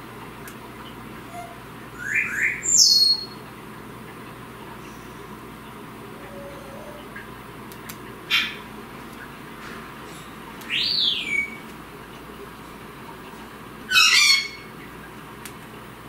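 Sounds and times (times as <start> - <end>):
cockatoo squawking: 1.2 - 3.3, 6.2 - 7.2, 8.3 - 8.7, 10.7 - 11.6, 13.9 - 14.7.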